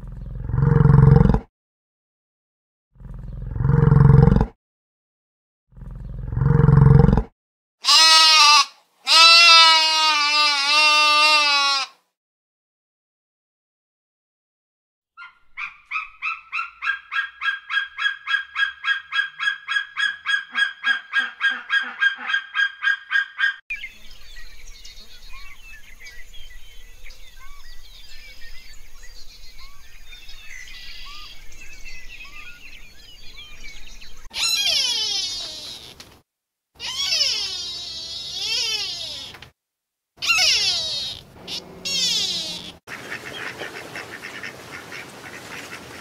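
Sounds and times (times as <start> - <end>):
bird calling shrill repeated notes: 15.2 - 23.7, 30.6 - 31.5, 34.2 - 36.0, 36.8 - 39.4, 40.2 - 42.8
soft bird chirps: 23.7 - 36.0.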